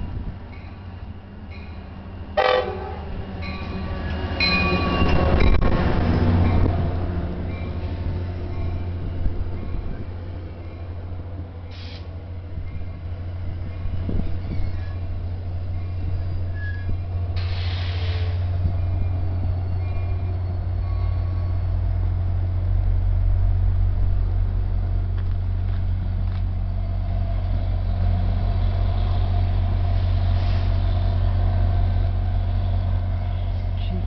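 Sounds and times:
diesel locomotive droning: 0.0s - 34.0s
air brake hiss: 11.7s - 12.2s, 17.4s - 18.5s.

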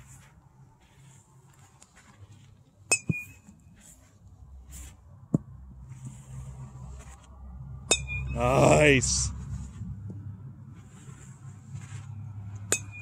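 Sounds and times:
metal bat pinging on ball: 2.9s - 3.5s, 7.8s - 8.4s, 12.6s - 13.0s.

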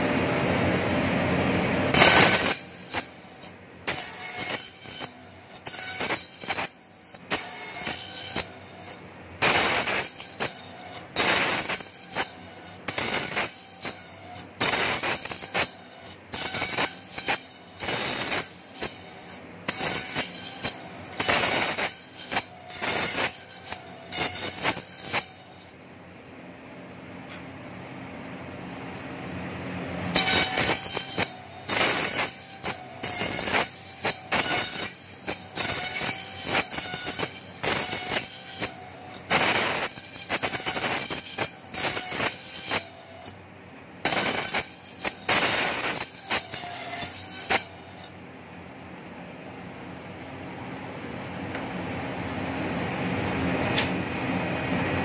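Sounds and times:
sharp bursts of cutting: 1.9s - 25.7s, 30.1s - 43.4s, 44.0s - 48.1s.

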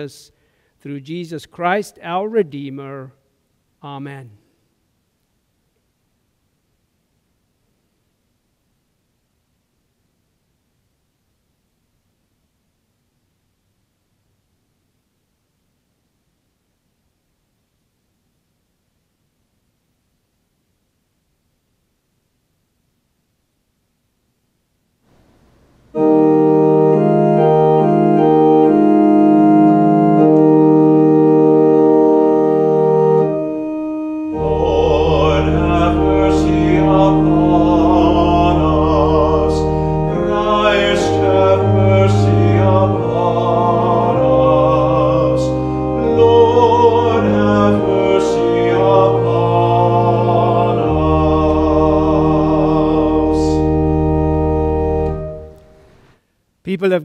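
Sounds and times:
church organ chords: 25.2s - 56.0s
person singing: 34.3s - 53.9s.

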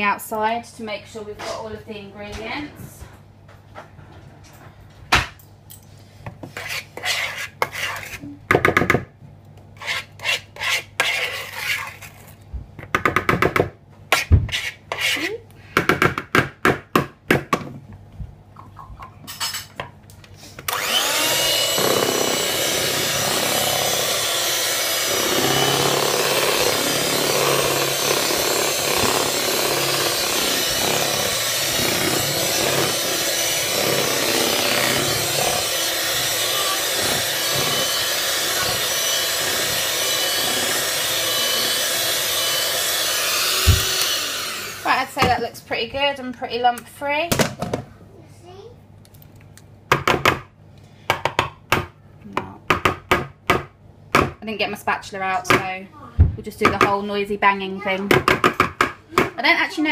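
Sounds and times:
spoon scraping plastic bowl: 6.4s - 8.3s, 9.8s - 12.4s
electric hand mixer running: 20.7s - 45.1s.

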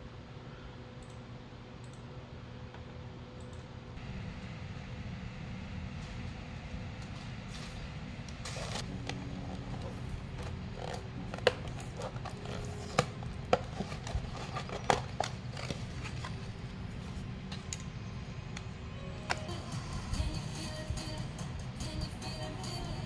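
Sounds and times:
low background hum: 0.0s - 23.0s
box rustling: 8.4s - 17.2s.

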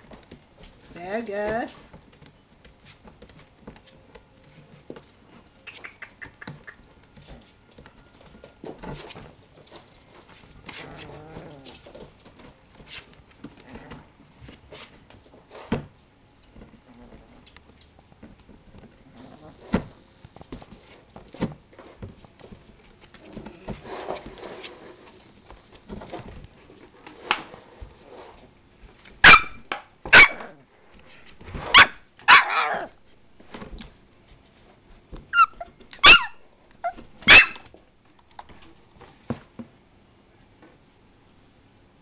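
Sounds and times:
puppy yapping: 29.2s - 30.6s, 31.7s - 32.9s, 35.3s - 37.7s.

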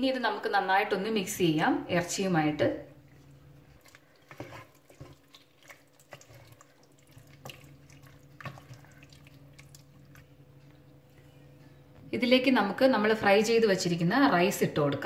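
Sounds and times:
faint steady hum: 0.0s - 15.0s
spatula stirring thick food: 3.0s - 10.2s.

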